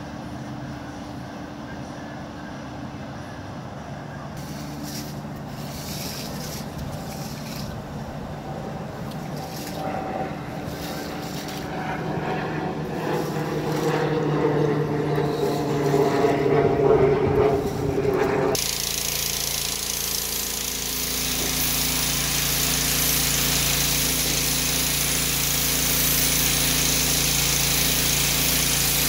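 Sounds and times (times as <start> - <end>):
engine droning: 0.0 - 29.0
squeegee pushing water: 4.4 - 8.3, 9.0 - 11.7.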